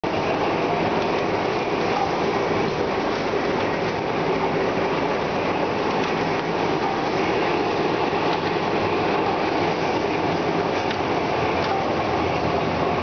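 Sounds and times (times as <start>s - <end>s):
printing machine running: 0.0s - 13.0s.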